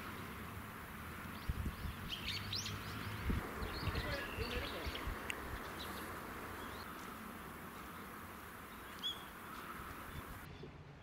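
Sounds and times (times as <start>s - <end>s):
background hiss: 0.0s - 10.5s
faint bird chirps: 7.7s - 10.7s.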